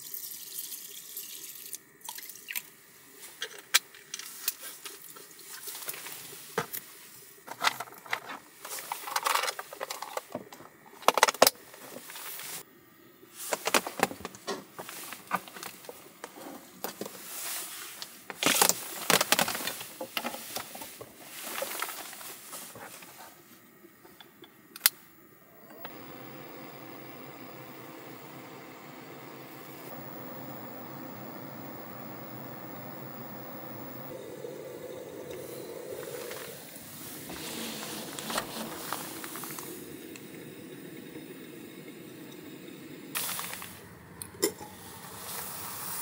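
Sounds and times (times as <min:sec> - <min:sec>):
power cord rustling: 0:25.5 - 0:40.3.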